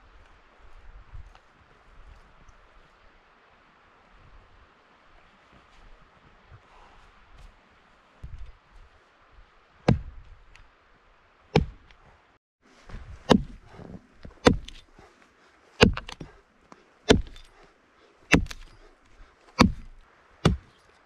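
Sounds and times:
axe chopping log: 9.9s - 10.2s, 11.6s - 11.9s, 13.0s - 14.9s, 15.8s - 16.4s, 17.1s - 17.6s, 18.3s - 18.9s, 19.5s - 20.8s.

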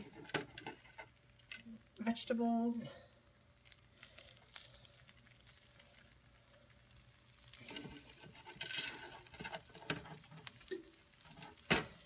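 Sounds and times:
food sizzling in skillet: 3.5s - 12.0s.

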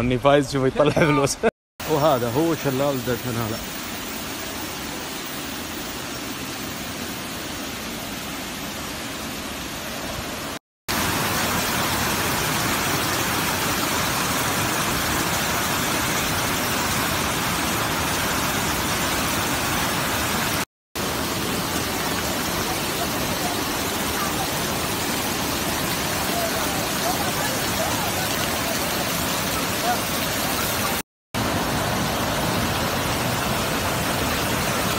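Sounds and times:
waterfall rushing: 1.8s - 34.9s.

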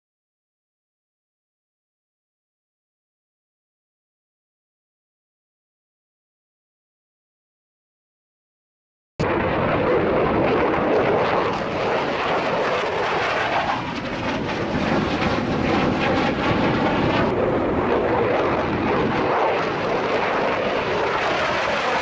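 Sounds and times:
fighter jet flying past: 9.2s - 22.0s.

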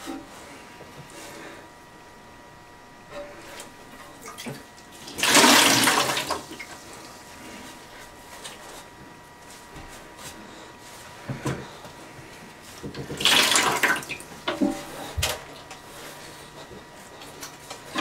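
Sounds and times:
water splashing into bucket: 4.2s - 6.8s, 13.2s - 14.2s.

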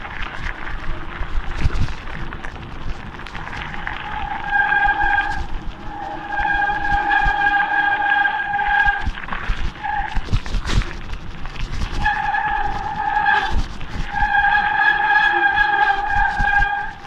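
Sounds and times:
low rumble of wind and tyres: 0.0s - 17.0s
bicycle disc brakes squealing: 3.7s - 11.0s, 11.8s - 17.0s.

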